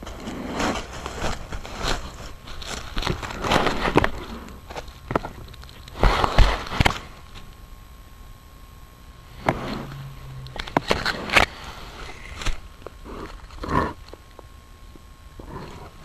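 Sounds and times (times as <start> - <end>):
rustling and brushing: 0.0 - 7.5, 9.3 - 14.0.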